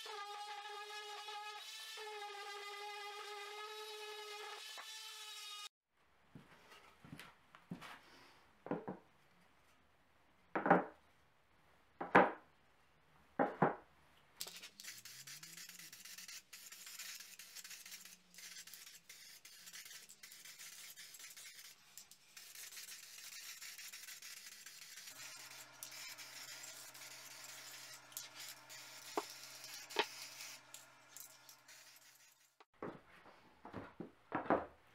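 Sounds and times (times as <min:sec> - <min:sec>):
spray can hissing: 0:14.4 - 0:21.8, 0:22.4 - 0:32.6.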